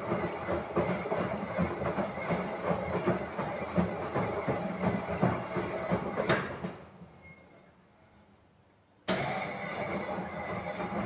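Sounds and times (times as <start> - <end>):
knocks and clatter: 0.0 - 6.9.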